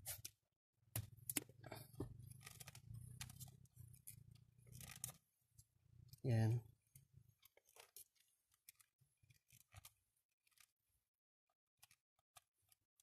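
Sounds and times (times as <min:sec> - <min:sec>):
electrical tape being wrapped: 0:04.7 - 0:05.2.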